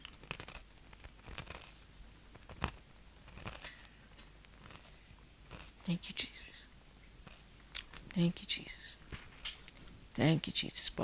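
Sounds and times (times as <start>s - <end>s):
person chewing bread: 0.0s - 1.8s.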